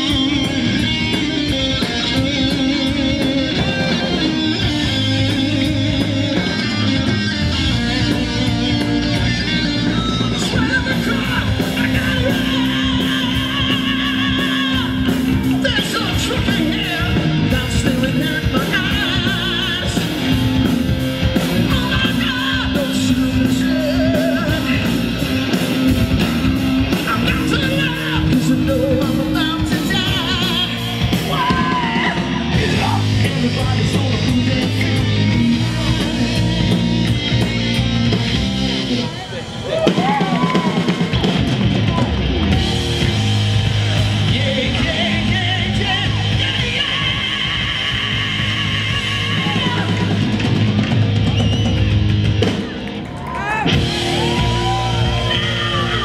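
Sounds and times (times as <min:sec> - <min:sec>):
person singing and yelling: 0:00.0 - 0:25.8, 0:26.8 - 0:38.1, 0:38.9 - 0:50.5, 0:53.4 - 0:56.0
bass guitar: 0:00.0 - 0:56.0
distorted electric guitar: 0:00.0 - 0:56.0
drum kit: 0:00.0 - 0:56.0.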